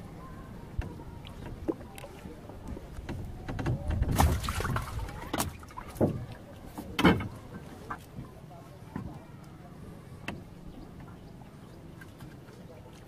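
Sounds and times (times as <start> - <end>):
knocks and clatter on wooden deck: 3.0 - 4.4.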